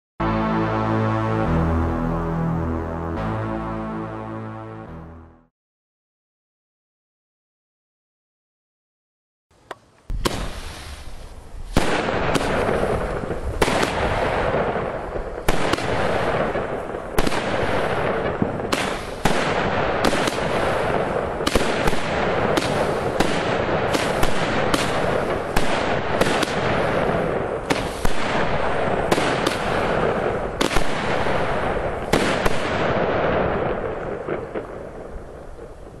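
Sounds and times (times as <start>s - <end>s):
firework battery bangs: 10.1s - 34.8s.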